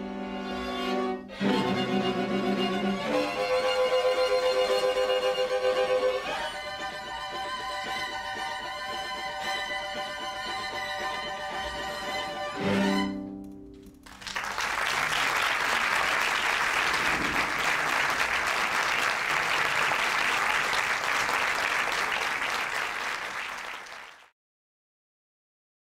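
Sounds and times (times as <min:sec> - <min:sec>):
string quartet chord: 0:00.0 - 0:13.8
audience applauding: 0:14.0 - 0:24.3.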